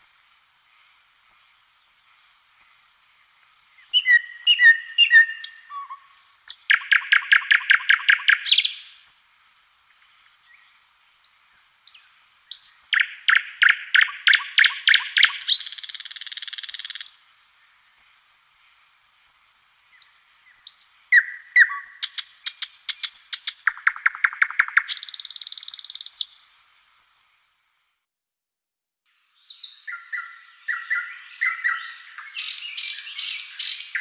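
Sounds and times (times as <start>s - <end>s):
nightingale singing: 1.6s - 9.1s, 10.3s - 17.9s, 19.8s - 26.6s, 29.1s - 34.0s.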